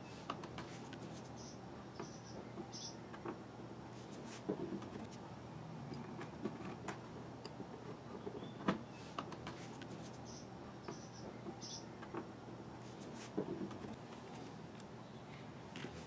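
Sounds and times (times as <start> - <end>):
knocks and rubbing on plastic: 4.2 - 5.1, 13.1 - 13.9.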